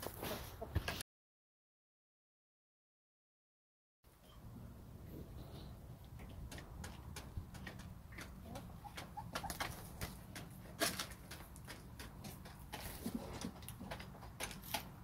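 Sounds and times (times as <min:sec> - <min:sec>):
hens pecking wood chips: 0:00.0 - 0:01.0, 0:04.8 - 0:15.0.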